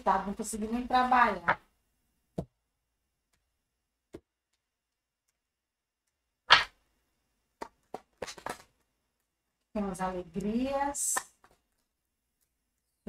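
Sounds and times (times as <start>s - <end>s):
tarot cards being handled: 6.1s - 6.8s, 7.5s - 9.7s, 10.4s - 13.0s.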